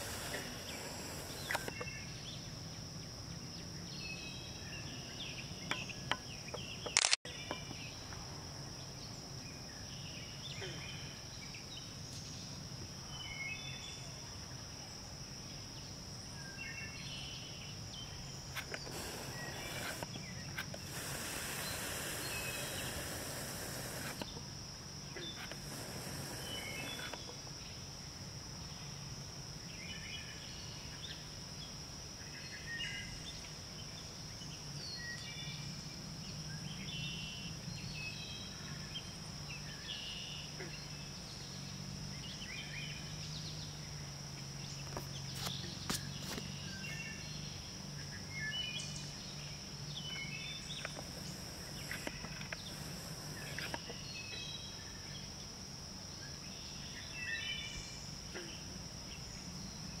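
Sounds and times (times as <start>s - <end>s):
high insect drone: 0.0s - 60.0s
sharp clicks: 6.9s - 7.2s.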